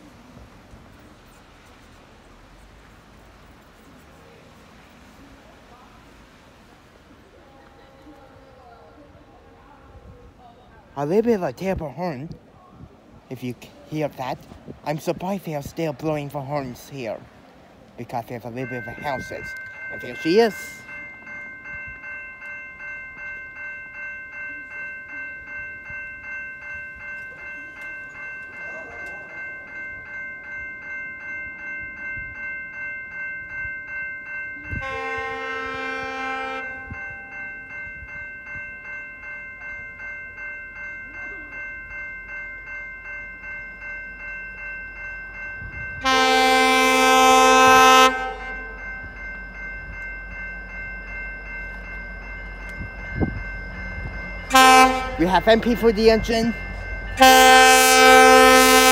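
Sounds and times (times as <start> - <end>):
level crossing bells ringing: 0.8 - 12.4, 13.3 - 58.9
train horn: 34.8 - 37.0, 46.0 - 48.7, 54.5 - 55.2, 57.2 - 58.9.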